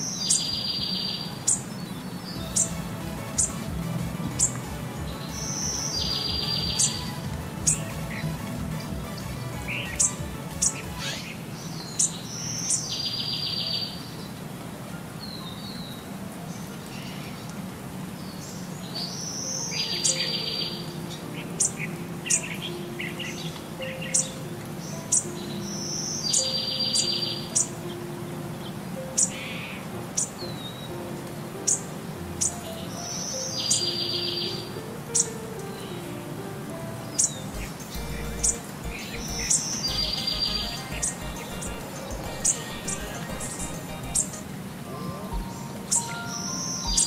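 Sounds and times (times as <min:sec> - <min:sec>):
bird-like chirps: 0:00.0 - 0:03.7, 0:04.3 - 0:08.9, 0:37.2 - 0:44.6
short buzzy trill: 0:37.6 - 0:44.5.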